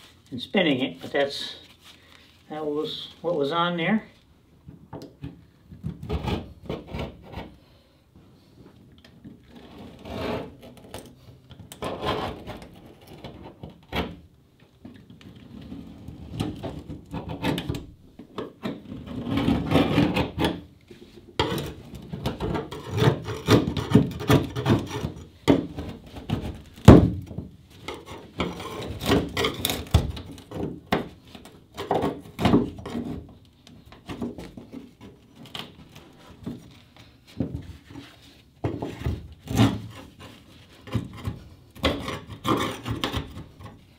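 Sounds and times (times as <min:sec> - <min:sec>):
metal scraper scraping wood: 0:09.6 - 0:14.1, 0:18.7 - 0:20.7, 0:21.4 - 0:27.0, 0:27.8 - 0:31.1, 0:37.9 - 0:43.9.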